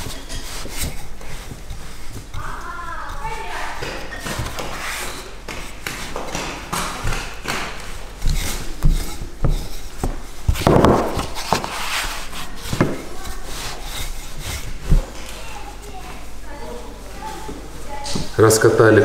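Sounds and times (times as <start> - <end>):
rolling pin scraping dough: 0.0 - 16.4
rolling pin knocking on board: 8.8 - 11.7.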